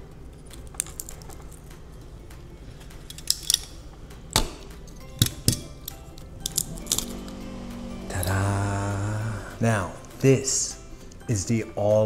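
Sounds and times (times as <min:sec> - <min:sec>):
hand tools clicking on metal: 0:02.8 - 0:03.8, 0:04.4 - 0:07.2.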